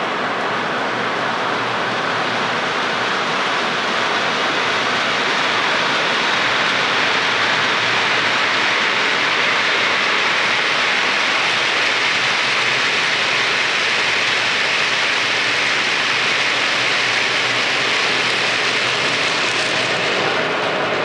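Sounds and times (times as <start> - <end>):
model train wheels on rails: 0.0 - 21.0.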